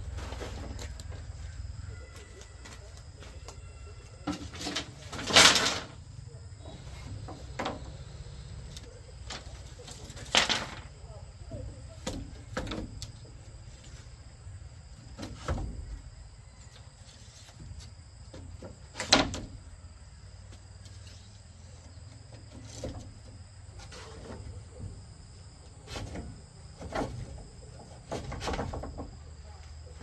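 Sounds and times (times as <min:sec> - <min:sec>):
bamboo poles knocking and scraping: 0:00.0 - 0:06.0, 0:06.6 - 0:19.7, 0:20.4 - 0:30.0.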